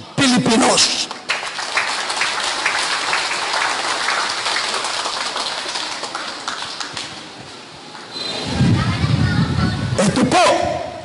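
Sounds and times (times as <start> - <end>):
crowd applauding: 1.1 - 7.3.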